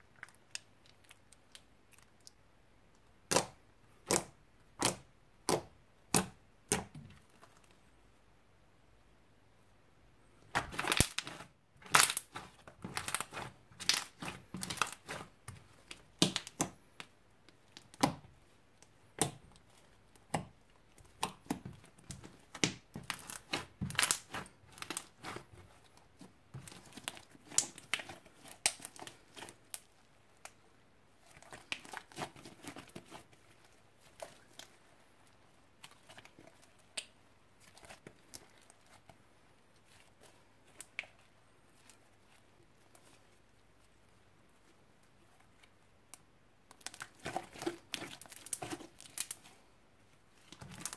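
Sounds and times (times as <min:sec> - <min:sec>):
slime clicking and popping: 0:03.3 - 0:07.0, 0:16.1 - 0:17.1.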